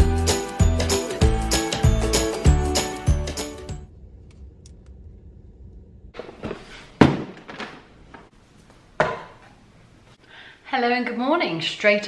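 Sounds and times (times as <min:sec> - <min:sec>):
knocks and thuds: 0:06.2 - 0:08.3.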